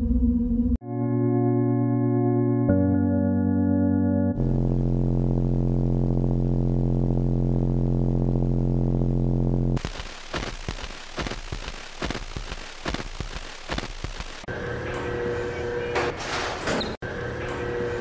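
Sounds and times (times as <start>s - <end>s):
low synthesizer drone chord: 0.8s - 9.8s
noisy hiss: 9.7s - 14.5s
crackling and sharp clicks: 9.8s - 14.5s.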